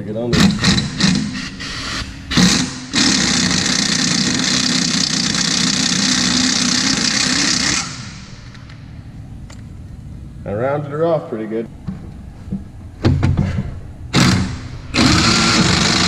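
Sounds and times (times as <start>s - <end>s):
pneumatic impact wrench: 0.3s - 8.7s, 14.1s - 16.0s.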